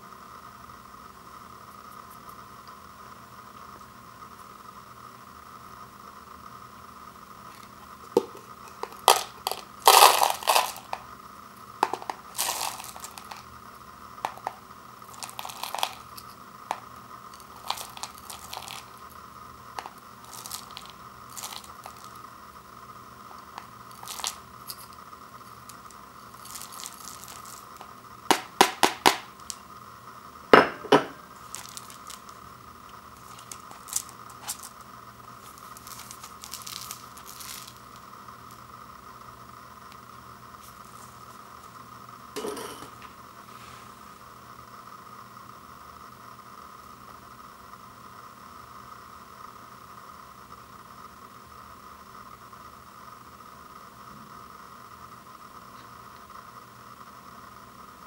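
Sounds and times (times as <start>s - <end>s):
dry rice rattling in bowl: 7.5s - 11.1s, 11.8s - 13.6s, 14.2s - 22.3s, 23.4s - 29.7s, 31.3s - 38.6s.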